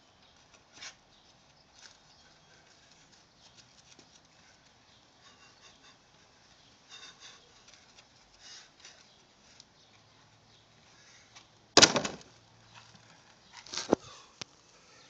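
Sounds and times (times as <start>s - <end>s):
loud sharp knock: 11.8s - 12.2s.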